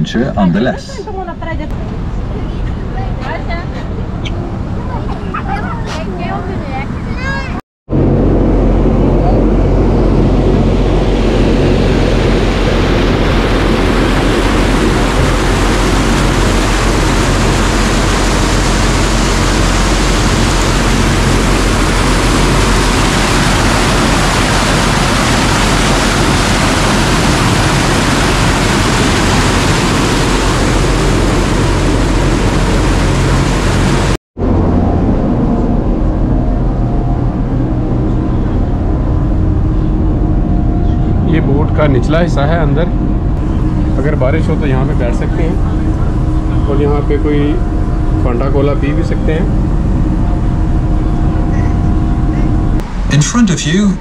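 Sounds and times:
boat engine running: 7.9 - 53.8
rush of water and wind: 8.6 - 36.5.

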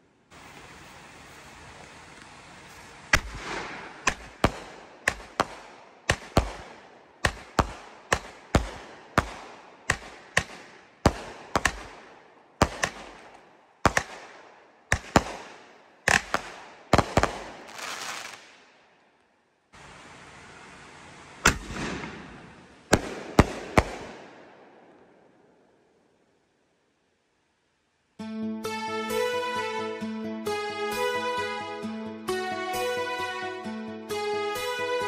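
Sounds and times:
fireworks bangs with echo: 3.1 - 18.7, 21.4 - 25.4.

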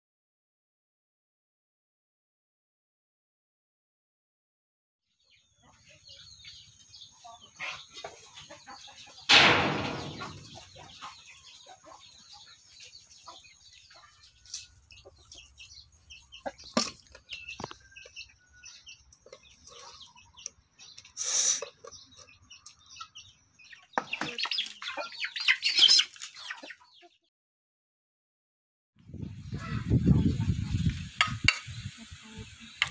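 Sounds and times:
chickens clucking: 5.3 - 27.3, 29.1 - 32.9
loud sudden noise: 9.3 - 10.6.

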